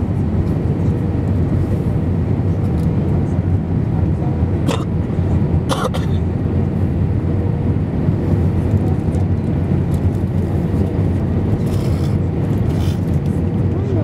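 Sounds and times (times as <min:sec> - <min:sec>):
airliner cabin engine rumble: 0:00.0 - 0:14.0.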